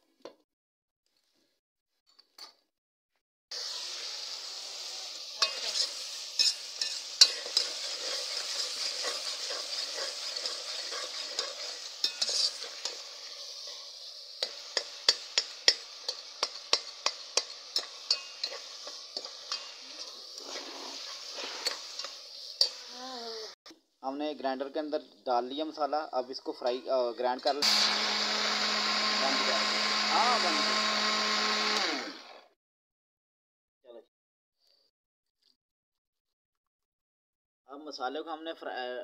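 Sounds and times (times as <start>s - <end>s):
masala sizzling in a pot: 3.5s - 23.6s, 27.3s - 32.2s
metal spoon scraping a pot: 5.4s - 13.8s, 14.4s - 22.9s.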